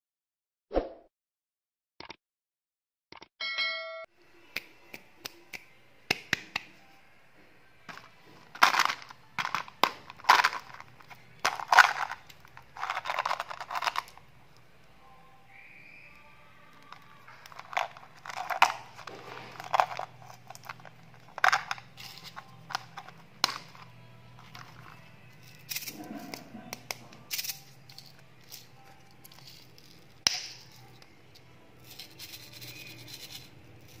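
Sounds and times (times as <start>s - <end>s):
plastic container handling noises: 7.9s - 14.2s, 16.9s - 25.0s
candy pellets rattling: 8.4s - 14.2s, 16.9s - 26.4s, 27.2s - 31.0s, 31.8s - 34.0s.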